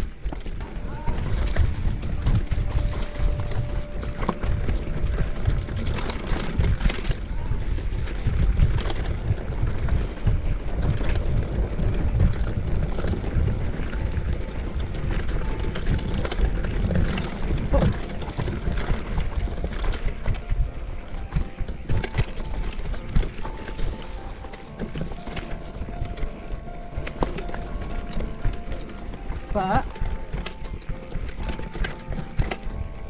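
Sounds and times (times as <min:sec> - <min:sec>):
bike knocks and rattles: 0:00.0 - 0:33.0
low rumble: 0:00.0 - 0:33.0
wind buffeting microphone: 0:00.0 - 0:33.0.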